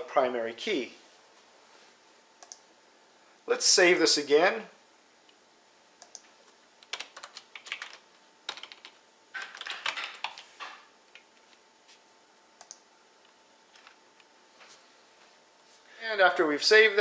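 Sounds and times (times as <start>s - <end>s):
keyboard typing: 6.0s - 11.4s, 12.6s - 12.8s.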